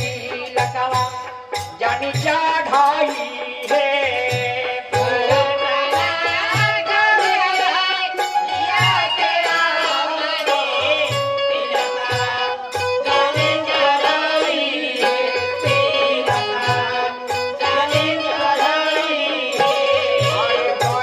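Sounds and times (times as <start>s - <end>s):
hand drum beat: 0.0s - 21.0s.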